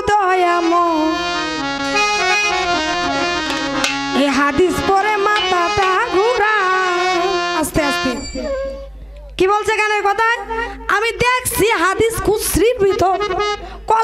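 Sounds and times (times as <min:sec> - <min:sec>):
hand drums: 0:02.9 - 0:04.5, 0:05.2 - 0:06.0.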